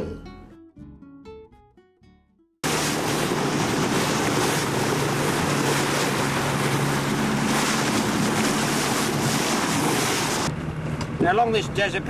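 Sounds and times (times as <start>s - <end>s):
boat engine hum: 2.6s - 12.0s
water rushing along hull: 2.6s - 12.0s
wind buffeting microphone: 2.7s - 11.2s.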